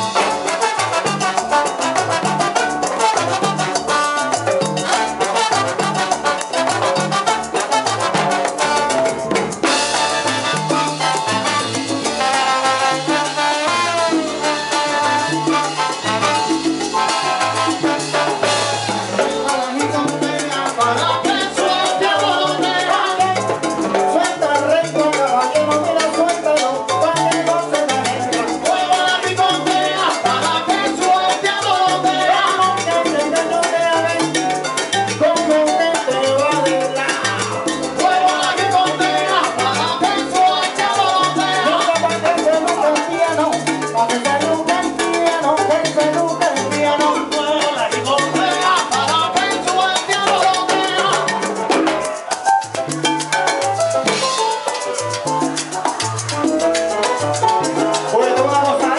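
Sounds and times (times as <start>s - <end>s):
dense percussion: 0.0s - 26.1s, 32.6s - 58.9s
bass line: 0.0s - 58.9s
salsa band playing: 0.0s - 58.9s
trombone: 0.0s - 58.9s
man singing lead: 19.1s - 34.4s, 35.2s - 51.4s, 58.0s - 58.9s
person singing lead: 19.3s - 23.6s, 38.0s - 42.3s, 47.2s - 51.4s, 58.0s - 58.9s.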